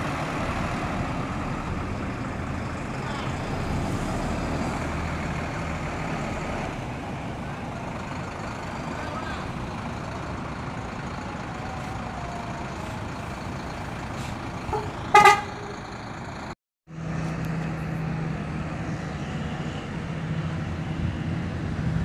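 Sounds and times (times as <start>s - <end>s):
bus engines and traffic: 0.0s - 22.0s
vehicle horn toot: 14.7s - 15.7s.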